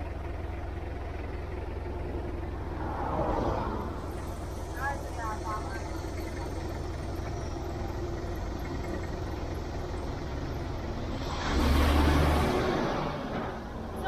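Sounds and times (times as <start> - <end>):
roadside traffic: 0.0 - 14.0
vehicle passing close by: 2.6 - 4.3, 10.9 - 13.7.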